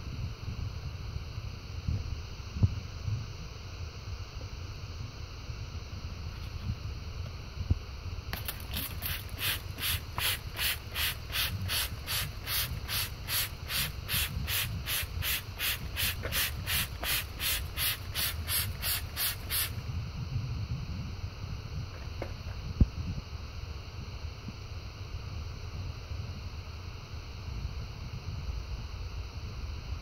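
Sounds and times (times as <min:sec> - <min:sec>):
spray bottle trigger click: 0:08.4 - 0:19.7
spray bottle hissing: 0:08.4 - 0:19.8.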